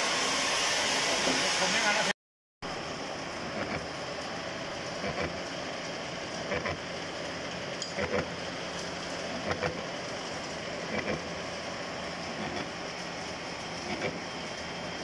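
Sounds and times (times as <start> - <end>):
milling machine cutting metal: 12.3 - 12.8, 13.5 - 15.0.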